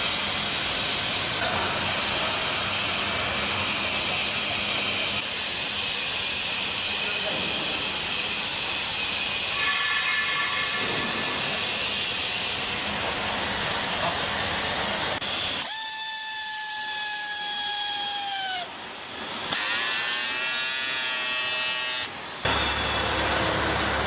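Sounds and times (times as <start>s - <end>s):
air motor whining: 10.7s - 24.0s.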